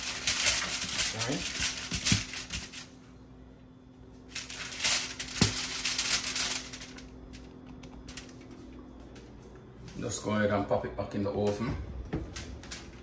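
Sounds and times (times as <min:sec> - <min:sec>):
aluminium foil crinkling: 0:00.0 - 0:03.2, 0:04.2 - 0:08.8, 0:12.3 - 0:13.0.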